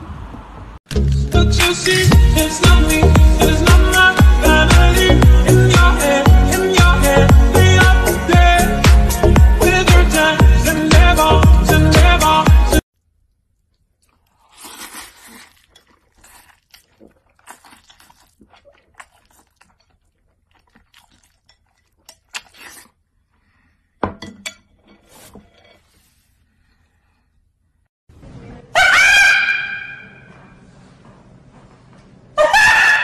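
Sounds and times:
music: 0.9s - 12.8s
eating with chopsticks: 13.0s - 23.6s
rooster crowing: 32.4s - 33.0s.

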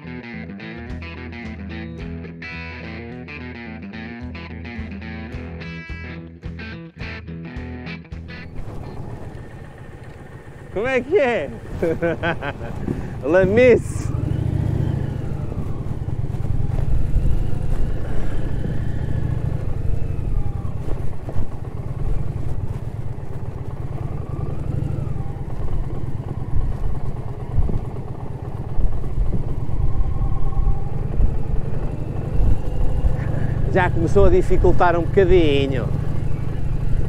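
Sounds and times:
motorcycle engine running: 0.0s - 37.0s.

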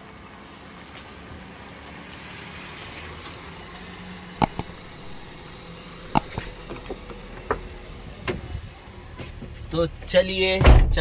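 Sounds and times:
mouse clicks: 4.4s - 6.7s.

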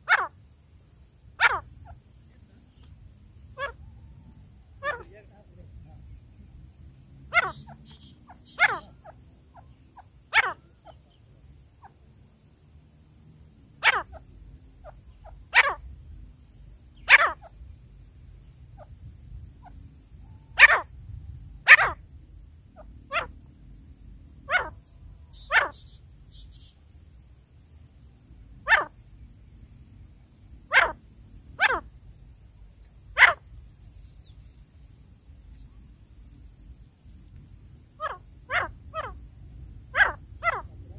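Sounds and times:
bird short sharp calls: 7.3s - 11.1s, 24.5s - 26.8s.

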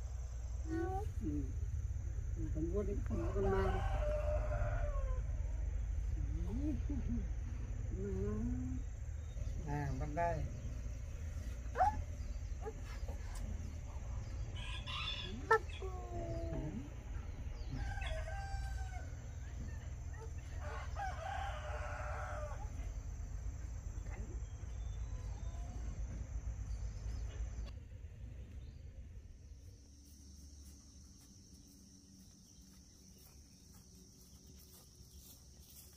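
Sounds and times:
low rumble: 0.0s - 14.6s, 15.2s - 21.0s
rooster crowing: 3.1s - 5.7s, 14.3s - 23.0s.

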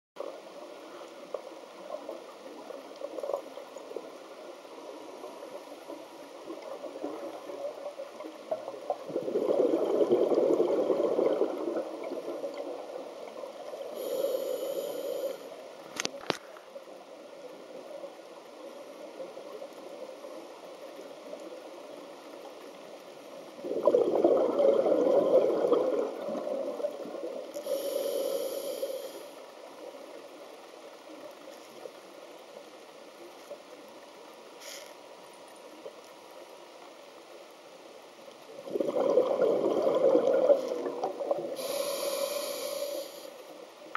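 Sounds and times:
underwater exhaust bubbles gushing: 6.4s - 13.8s, 23.6s - 27.5s, 38.6s - 42.7s
regulator hiss: 13.8s - 15.7s, 27.5s - 29.5s, 41.5s - 43.6s.

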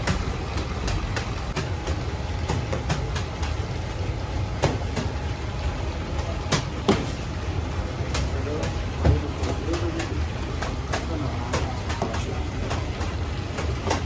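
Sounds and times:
sharp knocks and clicks: 0.0s - 3.8s, 8.1s - 14.0s.

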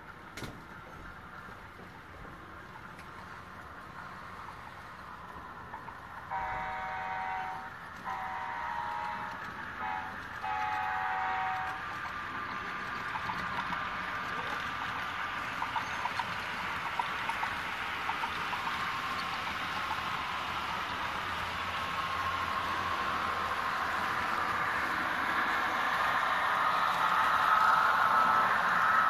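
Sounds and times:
model train hum and hiss: 0.0s - 29.0s
wheels clicking on track: 0.0s - 29.0s
multi-chime diesel horn: 6.3s - 9.2s, 9.8s - 11.7s.

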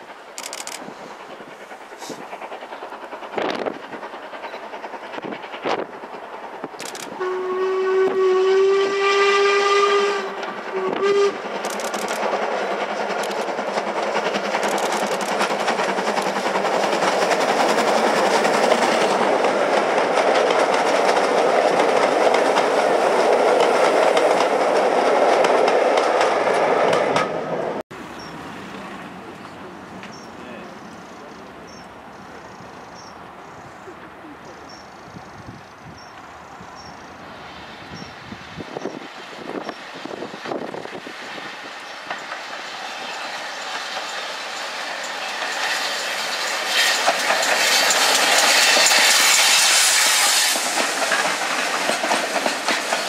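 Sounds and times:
train running past: 0.0s - 53.0s
steam locomotive whistle: 7.1s - 11.5s.

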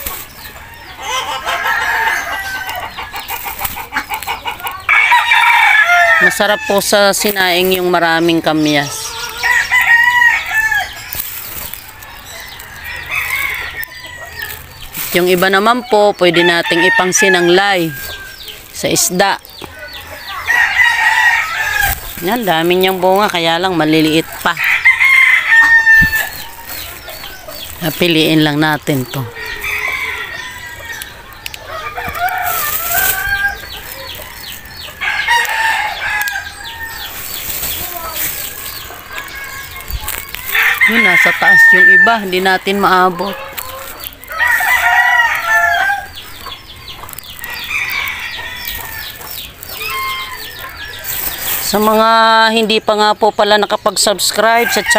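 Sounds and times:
rooster crowing: 0.7s - 3.1s, 4.8s - 6.9s, 9.0s - 11.1s, 12.2s - 14.5s, 16.2s - 18.4s, 20.3s - 22.0s, 24.4s - 27.6s, 29.3s - 37.3s, 40.4s - 46.2s, 47.4s - 51.3s.

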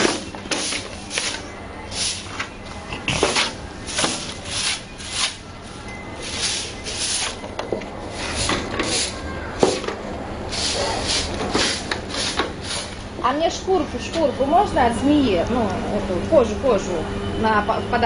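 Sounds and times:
broom sweeping concrete floor: 0.0s - 13.1s.

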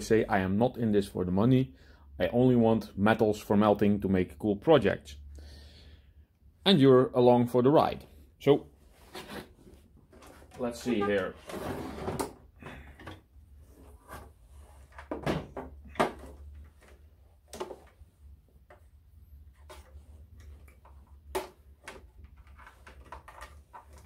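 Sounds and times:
tape recorder case being handled: 9.0s - 24.0s.

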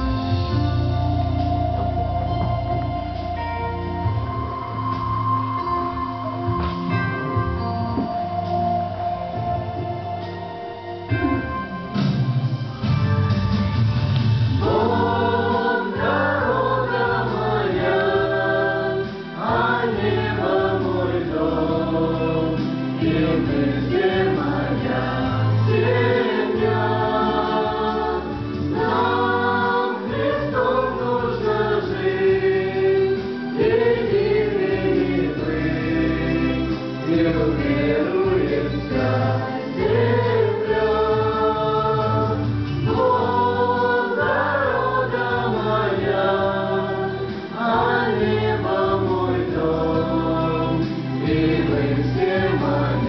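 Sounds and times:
mixed choir singing worship song: 14.4s - 53.0s.

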